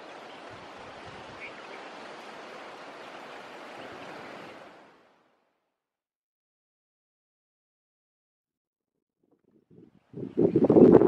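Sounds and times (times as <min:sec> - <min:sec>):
outdoor wind: 0:00.0 - 0:05.9, 0:09.0 - 0:11.0.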